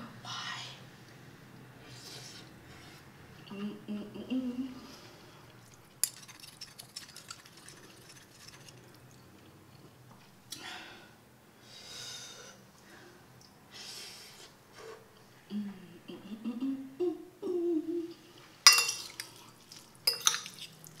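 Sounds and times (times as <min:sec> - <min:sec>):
cutlery scraping ceramic plate: 0:18.7 - 0:19.3, 0:20.1 - 0:20.8.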